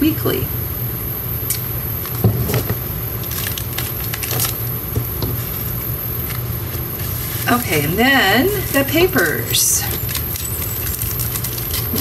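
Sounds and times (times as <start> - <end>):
sticker sheets rustling: 6.3 - 12.0.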